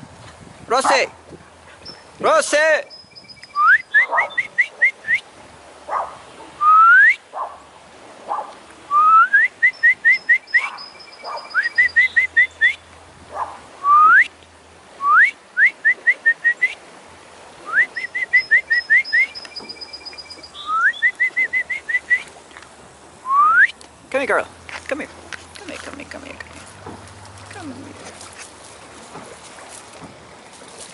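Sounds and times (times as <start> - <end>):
person whistling: 3.5 - 5.2, 6.6 - 7.2, 8.9 - 10.7, 13.8 - 14.3, 15.0 - 16.8, 17.7 - 22.3, 23.3 - 23.8.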